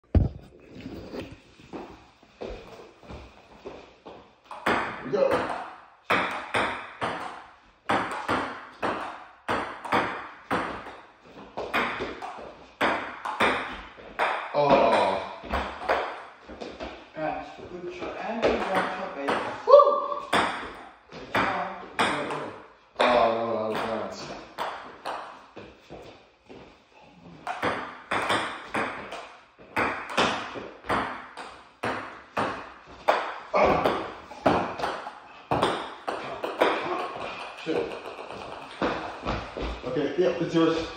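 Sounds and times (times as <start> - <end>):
ping pong ball hits: 4.4 - 16.4, 18.4 - 25.5, 27.4 - 39.8
ping-pong ball clicking: 37.4 - 38.9.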